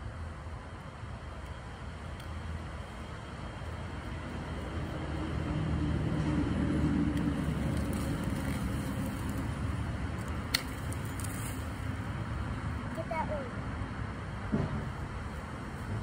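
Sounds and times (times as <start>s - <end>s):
passing vehicle engine rumble: 1.6s - 12.9s.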